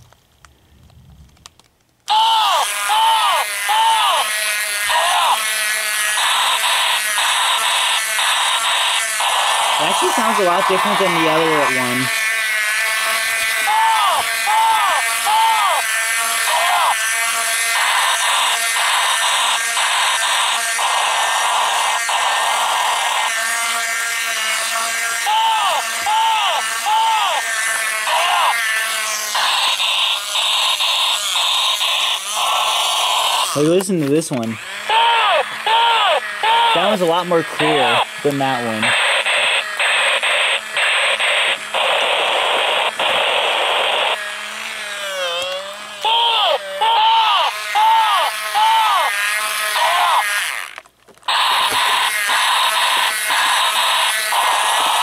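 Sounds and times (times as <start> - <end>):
toy motor and gears whirring: 1.2 - 55.0.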